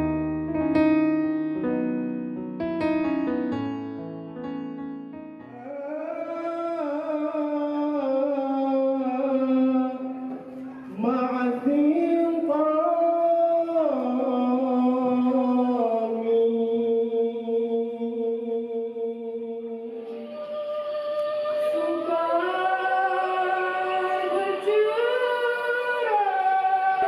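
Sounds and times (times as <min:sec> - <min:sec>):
man chanting through a microphone: 0:05.6 - 0:19.6.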